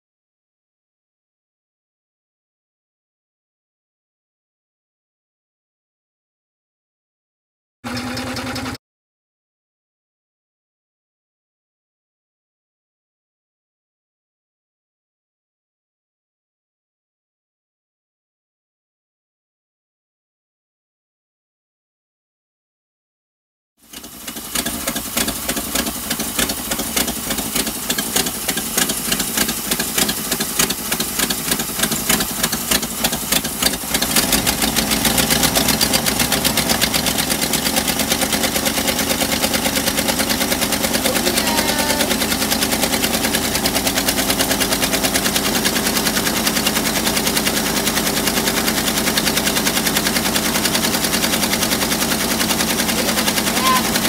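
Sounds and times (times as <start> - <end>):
engine running unevenly: 7.9 - 8.8, 23.8 - 54.0.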